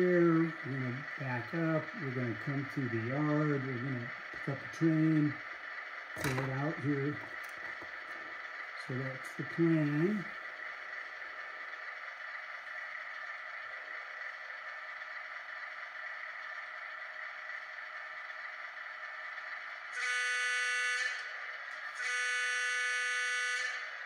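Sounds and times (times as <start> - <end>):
thin diesel engine idle: 0.0 - 24.0
locomotive horn blast: 19.9 - 21.3, 21.9 - 24.0.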